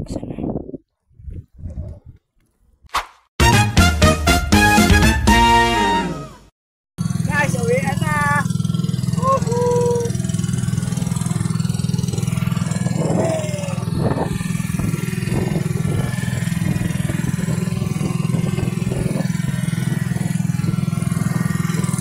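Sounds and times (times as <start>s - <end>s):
small boat engine running: 7.0s - 22.0s.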